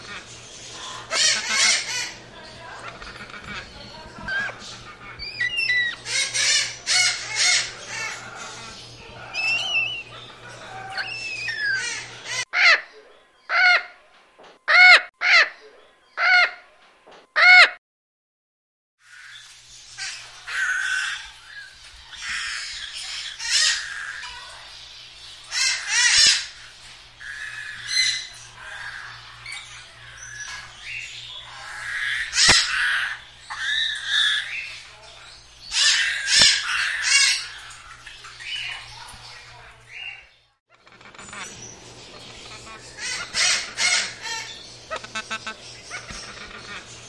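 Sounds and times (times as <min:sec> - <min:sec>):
parakeet chattering calls: 0:00.0 - 0:12.8, 0:19.0 - 0:24.8, 0:25.4 - 0:39.1, 0:40.8 - 0:47.0.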